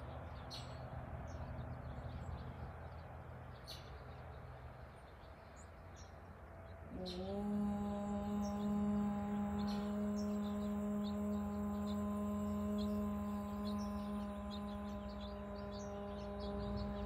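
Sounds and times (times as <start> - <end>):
small birds chirping: 0.0 - 17.0
woman chanting om: 6.8 - 17.0.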